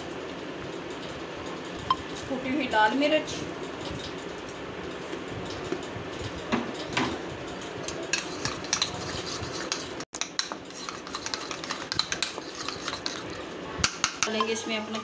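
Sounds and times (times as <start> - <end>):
spoon stirring thick sauce: 8.2 - 13.5
spoon clinking against bowl: 14.0 - 15.0.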